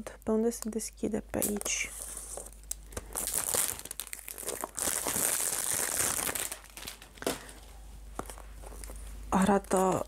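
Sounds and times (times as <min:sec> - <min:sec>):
wrapping being torn and crinkling: 0:01.4 - 0:07.5.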